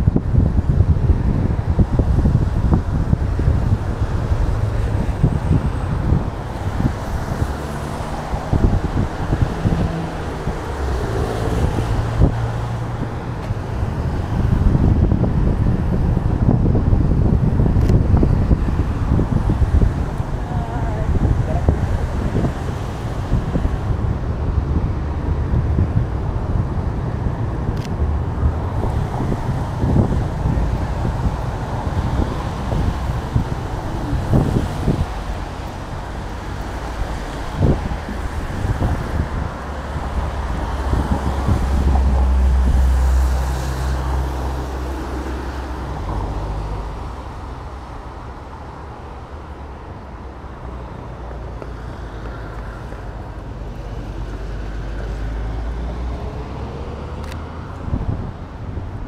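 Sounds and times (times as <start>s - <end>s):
low traffic rumble: 0.0s - 59.0s
wind on microphone: 0.0s - 59.0s
tyres hissing on wet road: 28.5s - 57.5s.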